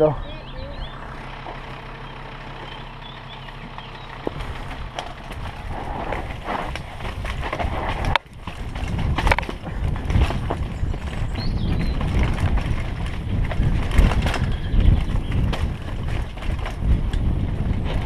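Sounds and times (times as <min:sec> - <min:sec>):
low hum: 0:00.0 - 0:18.0
tyres on dirt: 0:00.0 - 0:18.0
bike clattering over bumps: 0:02.6 - 0:18.0
air rushing on helmet camera: 0:04.3 - 0:18.0.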